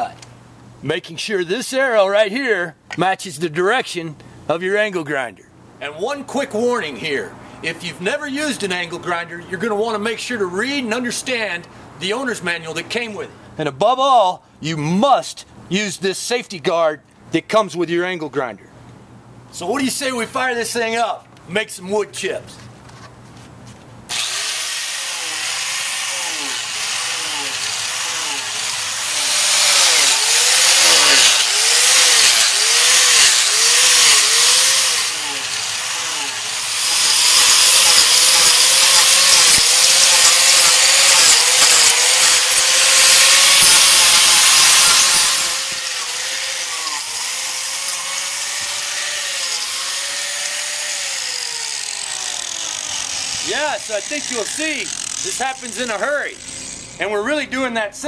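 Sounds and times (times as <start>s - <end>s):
angle grinder cutting wood: 24.1s - 57.1s.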